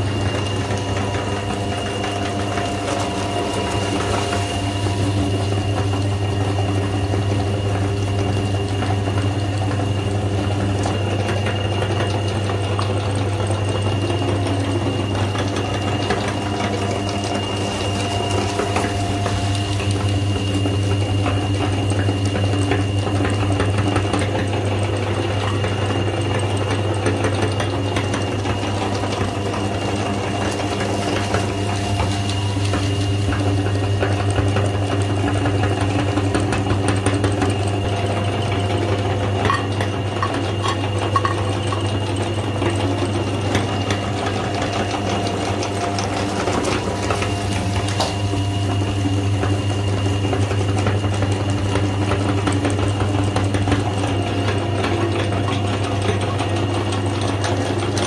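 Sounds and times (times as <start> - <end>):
electric motor humming: 23.8 - 55.0.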